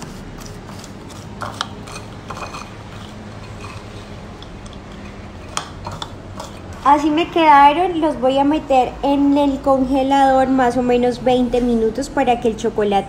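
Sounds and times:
steady low hum: 0.0 - 13.0
spoon scraping and clinking bowl: 0.4 - 6.7.

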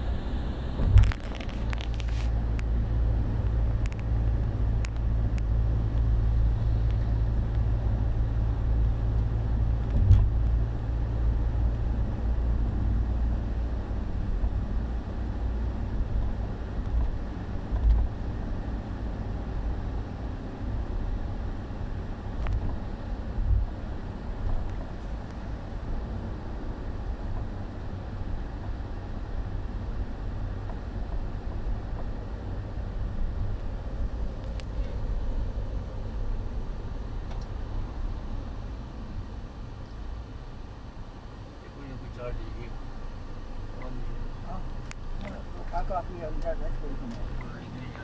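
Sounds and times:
car road and engine rumble: 0.0 - 48.0.

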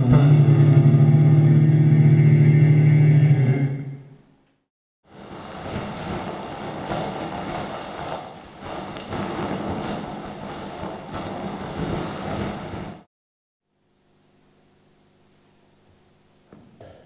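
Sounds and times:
plastic bag crumpling: 5.1 - 13.0.

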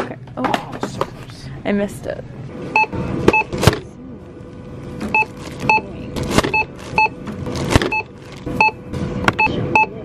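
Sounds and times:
conveyor belt motor hum: 0.0 - 10.0
barcode scanner beeps: 2.8 - 3.6, 5.1 - 5.9, 6.5 - 7.2, 7.9 - 8.8, 9.4 - 10.0.

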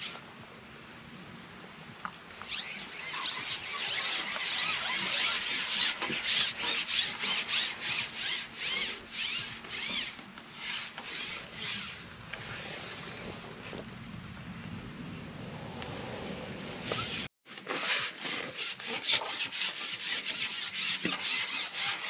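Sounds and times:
fishing pole rubbing and squeaking: 2.4 - 13.5, 16.8 - 22.0.

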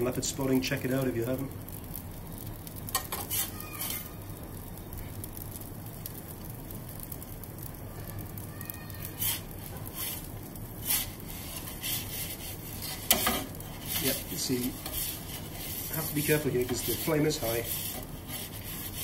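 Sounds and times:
gas burner flame roaring: 0.0 - 19.0
metal peel scraping on stone: 2.9 - 4.1, 9.2 - 19.0.

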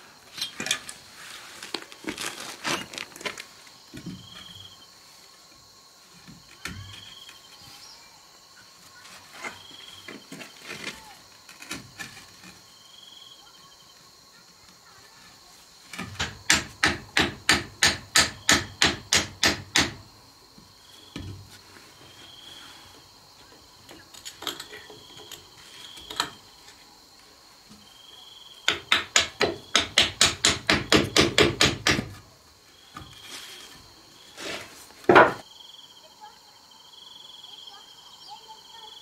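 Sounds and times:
faint insect chirping: 0.0 - 39.0
hammer striking wooden beam: 16.1 - 20.0, 28.7 - 32.2.

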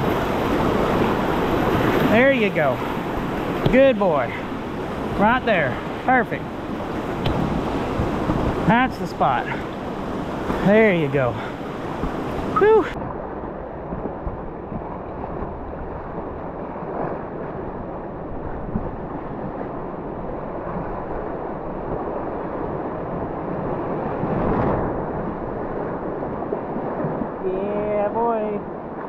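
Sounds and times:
rushing whitewater: 0.0 - 13.2
wind buffeting microphone: 0.0 - 29.0.

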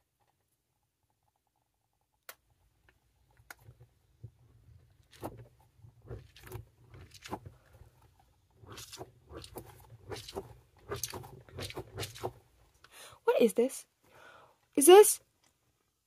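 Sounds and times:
squishy toy squelching: 5.0 - 12.4.

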